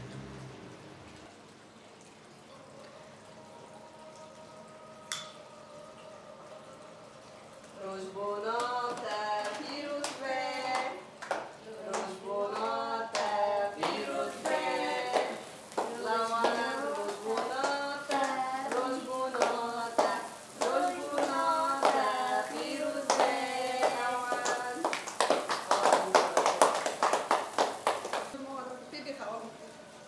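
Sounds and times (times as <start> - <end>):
voices singing a birthday song: 3.0 - 28.4
hand clapping: 8.6 - 28.4.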